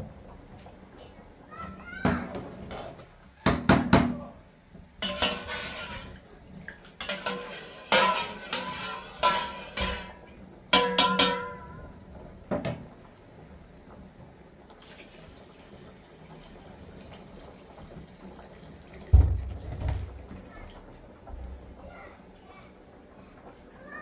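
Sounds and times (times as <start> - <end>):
metal pots clanking: 5.0 - 6.2, 6.8 - 12.8
metal scrape: 5.0 - 6.2, 7.0 - 10.2.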